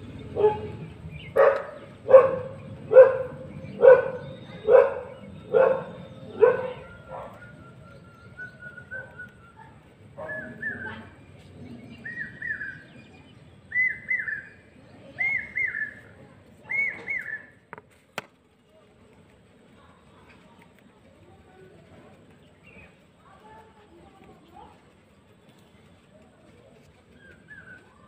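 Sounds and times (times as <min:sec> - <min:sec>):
dog barking: 0:00.4 - 0:07.4, 0:10.2 - 0:11.0
bird calling: 0:00.4 - 0:17.6.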